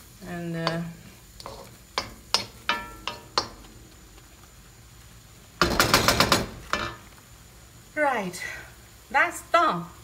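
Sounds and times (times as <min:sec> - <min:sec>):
wooden spatula scraping a wok: 0:00.5 - 0:04.6.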